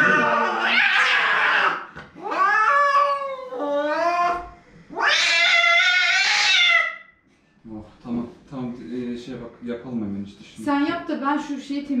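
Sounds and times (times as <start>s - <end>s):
cat yowling: 0.0s - 7.1s.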